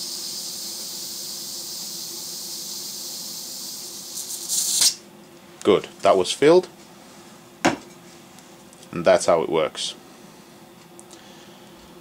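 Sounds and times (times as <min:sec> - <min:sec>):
gas hissing: 0:00.0 - 0:05.0.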